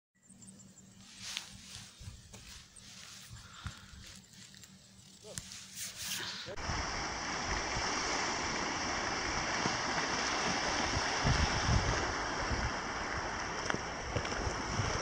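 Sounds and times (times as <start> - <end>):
waves lapping on shoreline: 5.4 - 15.0
wind rushing: 6.6 - 13.4
wind buffeting microphone: 6.6 - 15.0.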